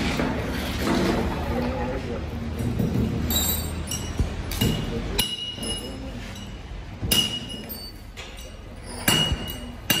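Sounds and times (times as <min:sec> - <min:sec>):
metal clinks with ringing: 0:03.2 - 0:10.0.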